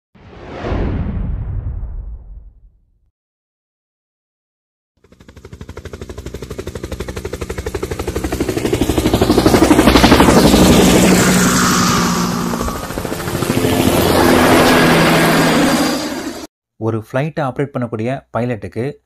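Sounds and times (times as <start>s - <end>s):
helicopter rotor beating: 5.0s - 16.5s.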